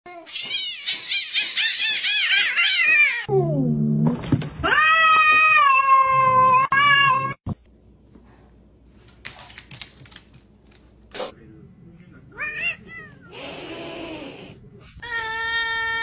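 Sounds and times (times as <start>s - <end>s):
cats yowling: 0.2s - 3.3s, 4.6s - 7.4s.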